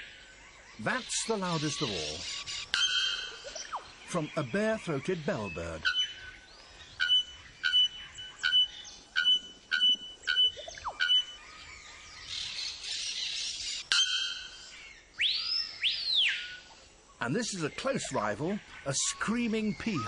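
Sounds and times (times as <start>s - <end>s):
bird calling loud ringing notes: 0.8s - 11.7s, 13.8s - 16.7s
bird whistle rising and falling: 7.0s - 12.3s, 15.2s - 16.7s.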